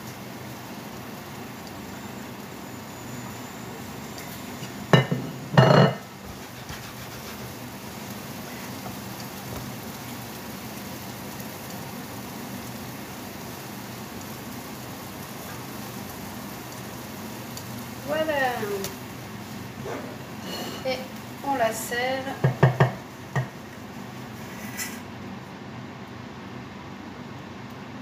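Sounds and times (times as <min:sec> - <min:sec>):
omelette sizzling in a pan: 0:00.0 - 0:25.1
plate knocking on worktop: 0:04.9 - 0:06.0, 0:22.4 - 0:23.6.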